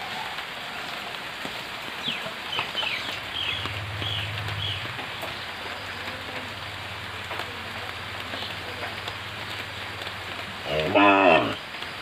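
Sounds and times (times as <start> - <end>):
rain falling on foliage: 0.0 - 12.0
bird chirps: 2.0 - 5.4
low steady hum: 3.0 - 8.4.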